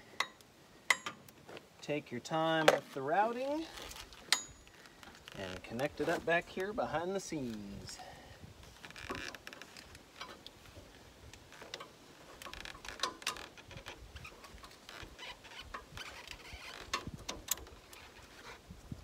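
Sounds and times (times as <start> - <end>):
hoses and fittings clicking: 0.0 - 1.4, 11.3 - 18.1.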